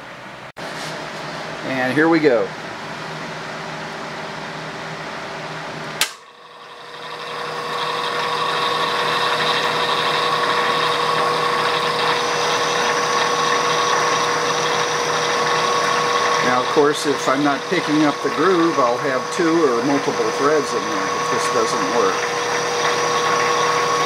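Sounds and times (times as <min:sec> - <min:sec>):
metal lathe whining: 0:06.6 - 0:24.0.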